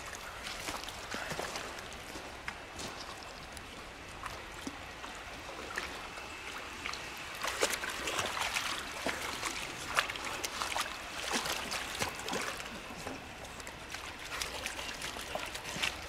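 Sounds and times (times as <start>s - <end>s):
stream trickling: 0.0s - 16.0s
dog splashing through water: 7.4s - 16.0s.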